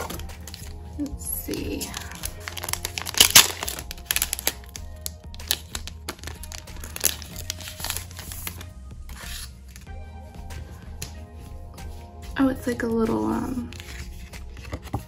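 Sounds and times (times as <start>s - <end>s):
packaging crinkling: 0.0s - 9.8s
quiet background music: 0.0s - 15.0s.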